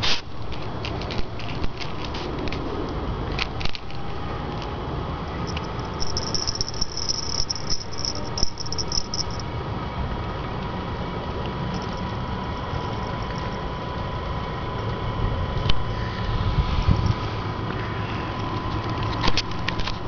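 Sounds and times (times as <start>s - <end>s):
steady low rumble: 3.9s - 9.5s, 10.6s - 18.4s
high thin chirping: 5.5s - 9.4s.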